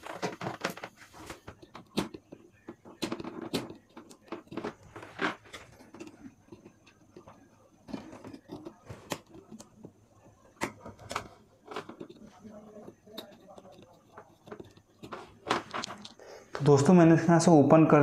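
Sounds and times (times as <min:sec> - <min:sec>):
small hand tools clicking and scraping: 0:10.6 - 0:16.2.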